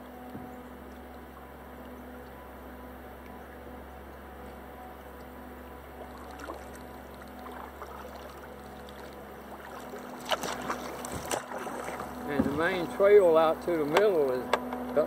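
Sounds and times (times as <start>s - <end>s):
faint steady hum: 0.0s - 15.0s
water dripping and trickling: 4.1s - 14.0s
paddle splashing in water: 5.9s - 14.2s.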